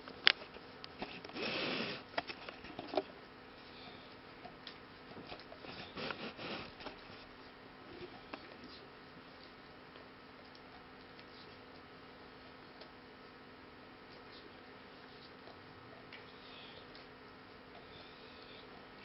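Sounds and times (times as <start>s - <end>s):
dog sniffing: 5.6s - 6.8s.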